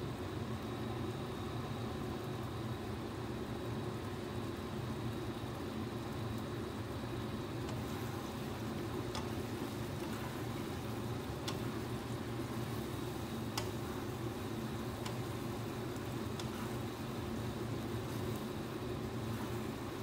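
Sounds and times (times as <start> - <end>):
steady low hum: 0.0 - 20.0
spatula stirring thick sauce: 7.7 - 20.0
spatula clicking against pan: 9.1 - 14.2, 14.8 - 15.4, 16.0 - 17.0.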